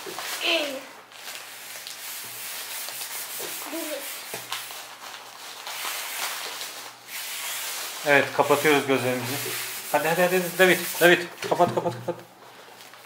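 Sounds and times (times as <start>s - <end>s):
hands rubbing on tabletop: 2.0s - 4.7s, 7.1s - 11.9s.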